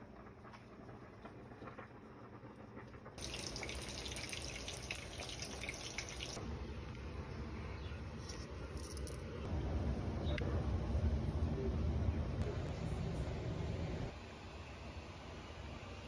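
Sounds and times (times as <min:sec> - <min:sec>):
water running from a tap: 0:03.2 - 0:06.4.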